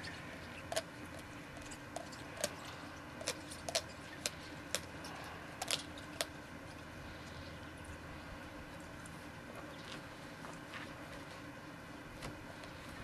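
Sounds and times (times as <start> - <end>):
dog gnawing chew toy: 0.0 - 6.9.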